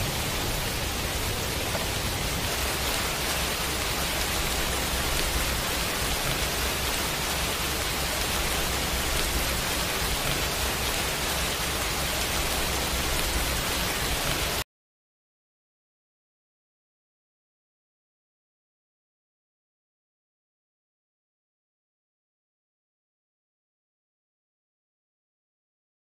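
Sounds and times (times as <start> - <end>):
low rumble: 0.0 - 14.5
heavy rain hissing: 0.0 - 14.6.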